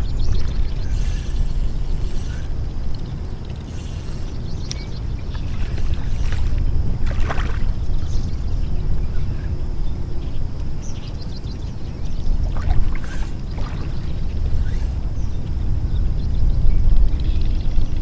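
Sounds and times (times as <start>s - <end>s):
wind rumbling on microphone: 0.0s - 18.0s
shallow water splashes: 5.3s - 8.0s, 12.4s - 14.3s.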